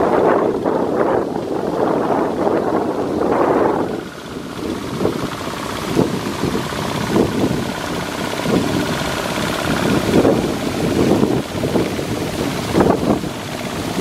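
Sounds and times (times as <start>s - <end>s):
diesel tractor engine running: 0.0s - 14.0s
water and mud splashing: 0.0s - 14.0s.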